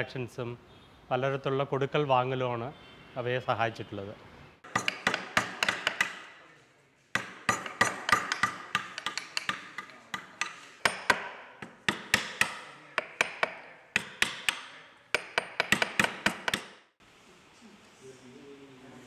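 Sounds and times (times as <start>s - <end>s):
chisel tapping into wood: 4.6s - 6.3s, 7.2s - 16.8s.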